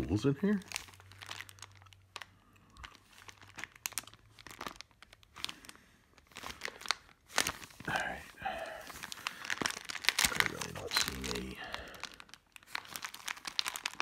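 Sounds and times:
plastic bags crinkling: 0.0s - 14.0s.

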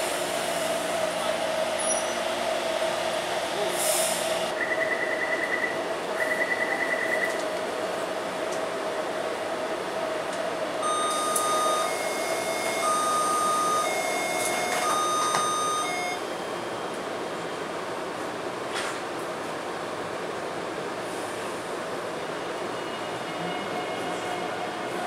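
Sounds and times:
train inverter whining tones: 8.8s - 18.3s
rapid high door beeping: 10.8s - 16.2s.

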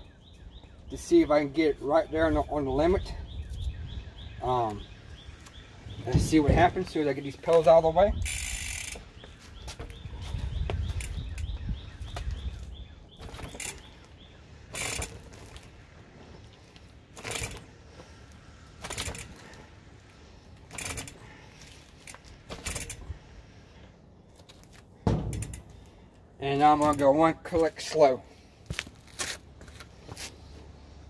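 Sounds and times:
bike freehub ticking: 8.2s - 9.4s, 10.7s - 12.6s, 13.2s - 15.8s, 17.2s - 17.7s, 18.3s - 23.2s, 25.3s - 25.9s
bike fork sharp knocks: 25.0s - 25.9s.

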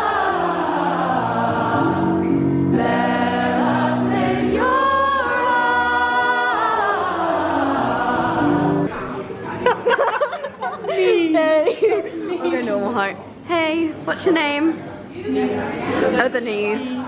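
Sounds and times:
mixed choir singing held chords: 0.0s - 9.0s.

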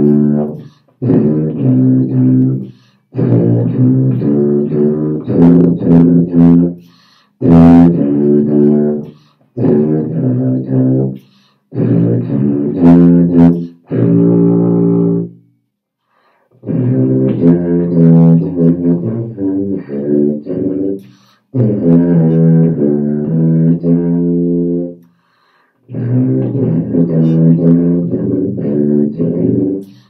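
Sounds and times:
tuba playing low notes: 0.0s - 15.4s, 16.6s - 25.1s, 25.8s - 30.0s.

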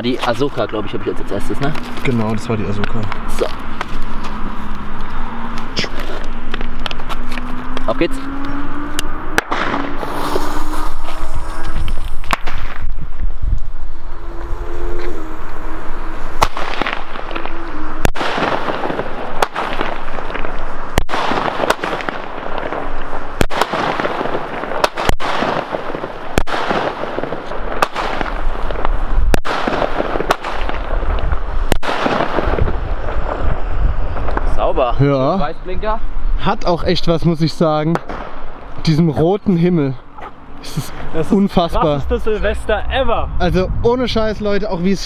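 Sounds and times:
firework bangs: 0.0s - 34.8s, 37.9s - 38.7s
firework crackling hiss: 9.4s - 34.9s.

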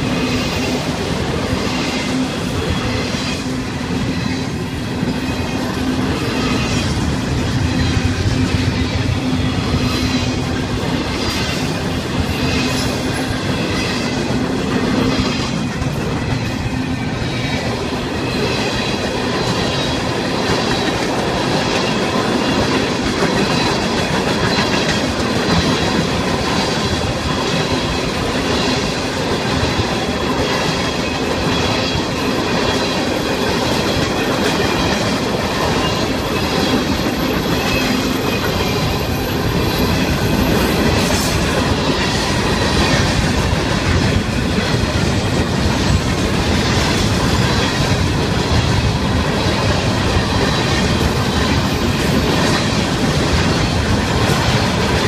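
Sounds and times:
freight train clattering over rails: 0.0s - 55.0s.

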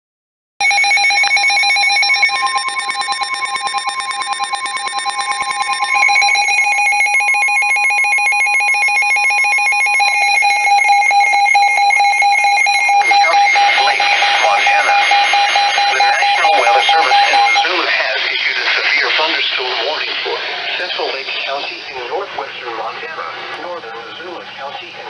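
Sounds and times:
fast warbling electronic alarm beep: 0.6s - 17.8s
steady single-pitch warning tone: 0.6s - 17.8s.

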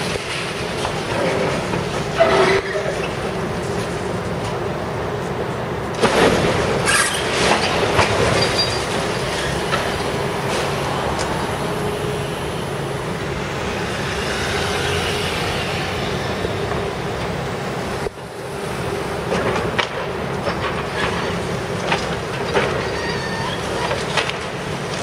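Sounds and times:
excavator running: 0.0s - 25.0s
concrete cracking and clanking: 6.0s - 10.8s
car passing: 9.6s - 17.1s.

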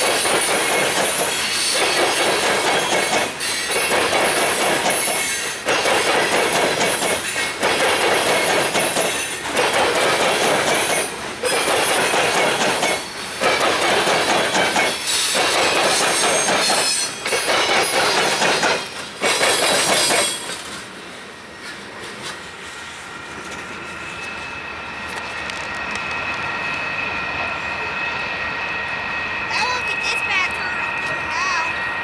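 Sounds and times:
freight train wheels clattering: 0.0s - 24.4s.

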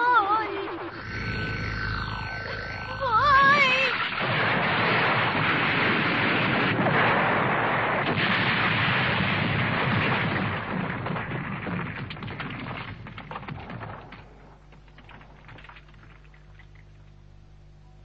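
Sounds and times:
cartoon explosion blast: 0.6s - 14.0s
sharp crackling clicks: 8.0s - 17.2s.

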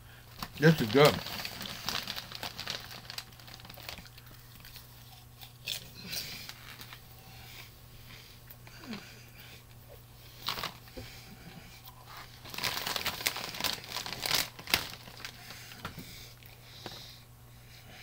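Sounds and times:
plastic bag crinkling: 0.3s - 7.0s, 10.4s - 10.9s, 12.2s - 15.9s.

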